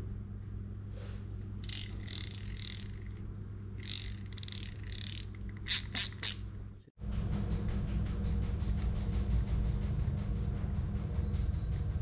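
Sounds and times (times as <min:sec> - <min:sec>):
fishing reel drag clicking: 0:01.6 - 0:03.2, 0:03.8 - 0:06.4.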